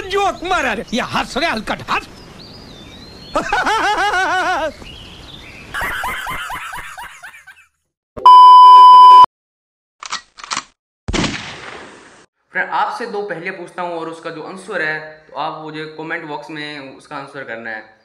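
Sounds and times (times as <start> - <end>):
high rapid laughter: 3.3 - 4.8, 5.8 - 7.8
loud beep tone: 8.2 - 9.3.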